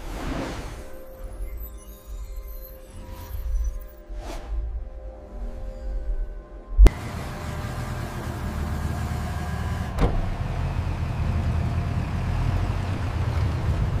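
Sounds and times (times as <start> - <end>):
pickup truck engine rumble: 6.9 - 14.0.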